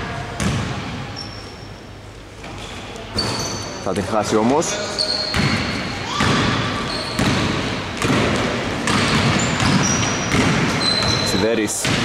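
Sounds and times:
basketball bouncing on hardwood floor: 0:00.4 - 0:00.7, 0:07.2 - 0:12.0
sneaker squeaks: 0:00.4 - 0:04.1, 0:04.7 - 0:12.0.

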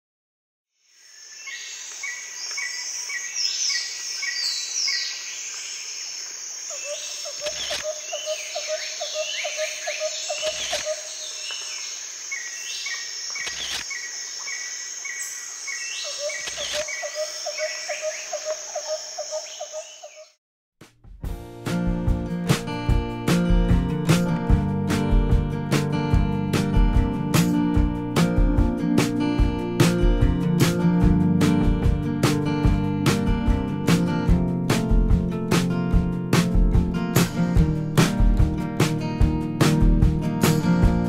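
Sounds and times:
high insect drone: 0:00.8 - 0:20.3
birds singing and calling: 0:01.4 - 0:05.9, 0:06.7 - 0:20.4.

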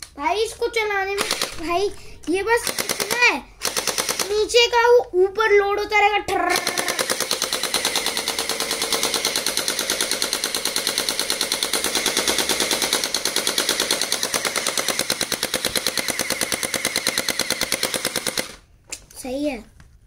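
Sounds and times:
toy blaster rapid firing: 0:01.0 - 0:04.6, 0:06.3 - 0:18.7.

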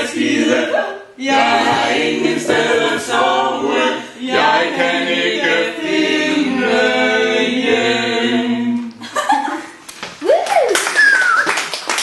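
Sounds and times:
group singing a cappella: 0:00.0 - 0:09.0.

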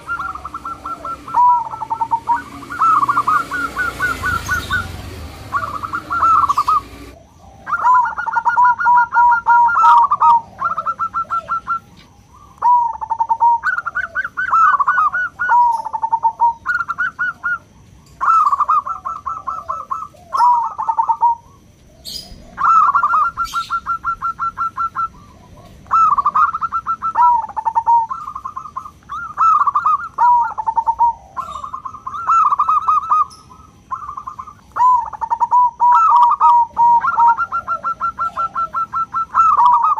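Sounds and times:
dove trilled cooing: 0:00.0 - 0:39.9.

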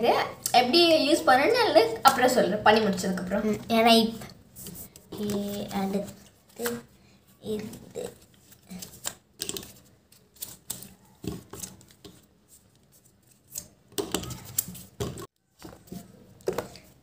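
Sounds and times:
plastic parts clicking and knocking: 0:09.0 - 0:09.8.

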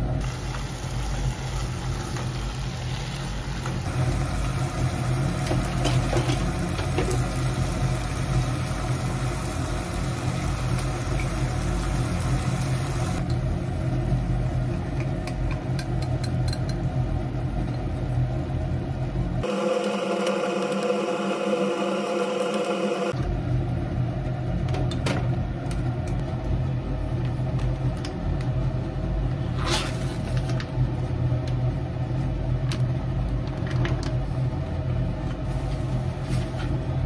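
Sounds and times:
pork and onions simmering in pan: 0:00.0 - 0:24.6
low mechanical hum: 0:00.0 - 0:37.0.

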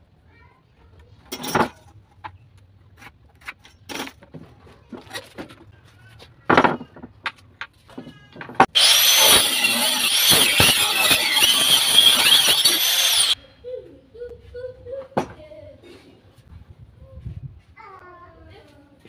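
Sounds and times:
angle grinder cutting wood: 0:08.6 - 0:13.4.

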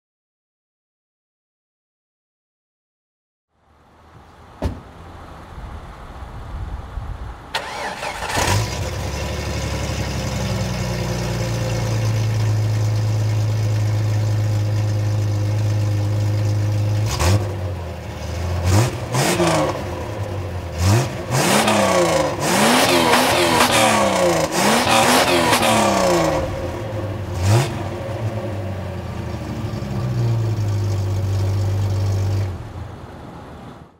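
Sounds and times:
car engine starting and revving: 0:07.5 - 0:33.5.

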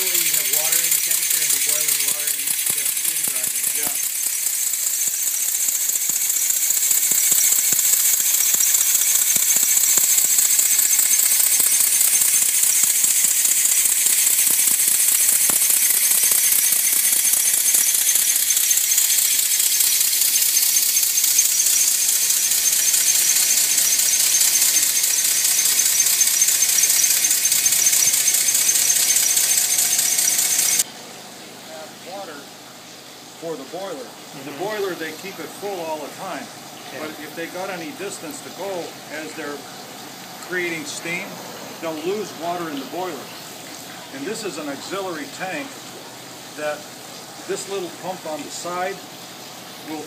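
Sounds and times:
model steam engine hissing and ticking: 0:00.0 - 0:30.9, 0:47.5 - 0:49.2.

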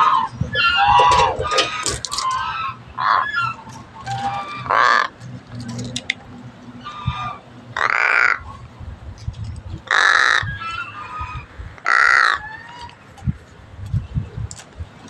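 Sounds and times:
crow cawing: 0:04.5 - 0:05.1, 0:07.8 - 0:08.4, 0:09.9 - 0:11.0, 0:11.8 - 0:12.8.

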